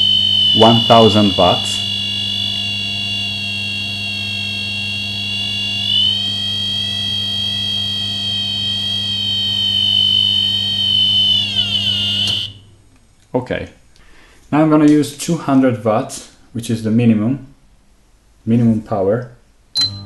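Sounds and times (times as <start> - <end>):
high electronic buzzer tone: 0.0 - 12.7, 19.8 - 20.0
low steady hum: 0.0 - 18.6.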